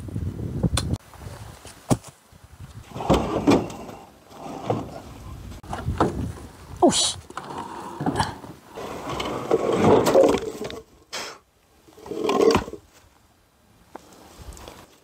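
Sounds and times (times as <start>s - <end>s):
rocks scraping: 1.4s - 11.1s, 11.8s - 13.1s.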